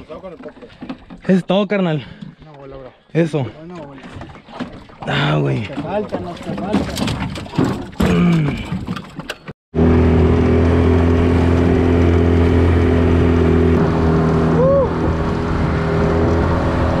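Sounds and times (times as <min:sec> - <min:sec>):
water and wind rushing: 0:00.0 - 0:17.0
boat motor running: 0:03.8 - 0:17.0.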